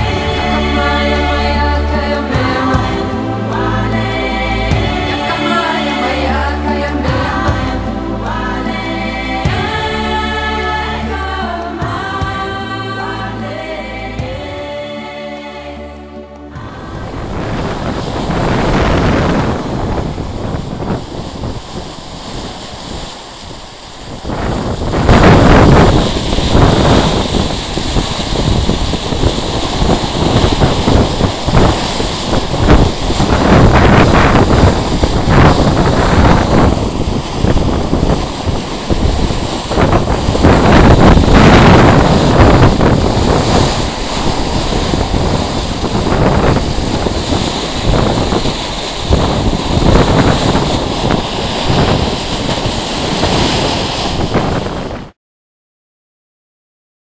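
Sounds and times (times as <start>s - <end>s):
wind buffeting microphone: 0.0s - 5.6s, 16.6s - 55.2s
water splashing around ship bow: 0.0s - 15.4s, 16.4s - 55.2s.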